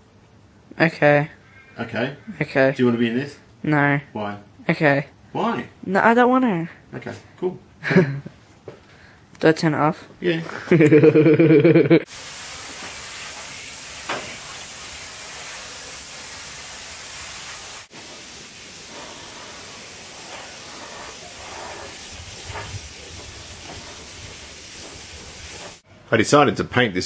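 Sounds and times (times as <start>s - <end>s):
paint spray gun hissing: 12.1s - 25.8s.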